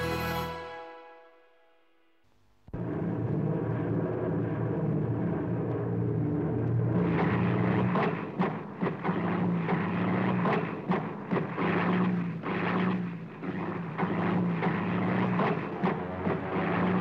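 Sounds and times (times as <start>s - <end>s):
propeller aircraft engine drone: 2.8s - 17.0s
sharp cracks: 7.0s - 17.0s.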